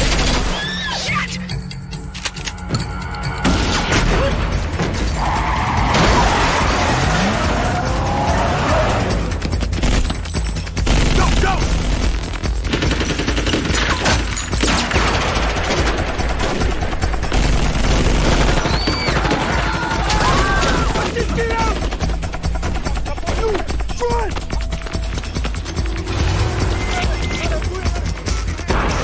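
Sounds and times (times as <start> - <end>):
dramatic music score: 0.0 - 29.0
automatic rifle fire: 10.8 - 21.2.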